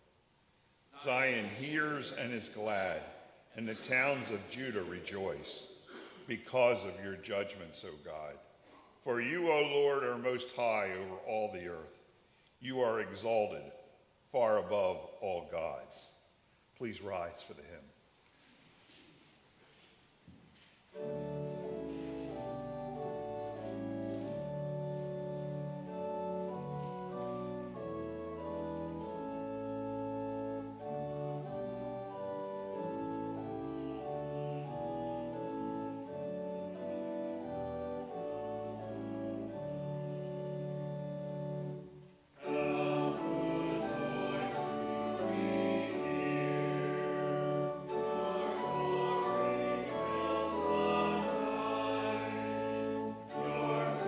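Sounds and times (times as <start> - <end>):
congregation singing a hymn: 20.9 - 54.0
organ playing held chords: 20.9 - 54.0.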